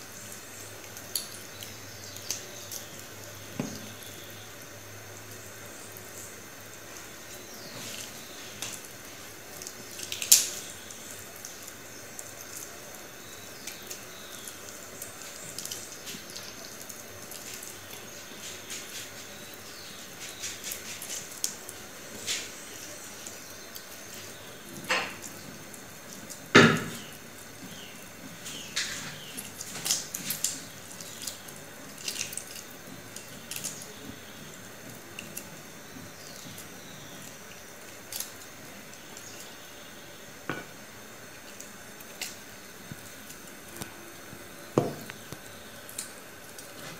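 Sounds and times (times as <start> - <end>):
wet tearing of meat: 28.5 - 34.0.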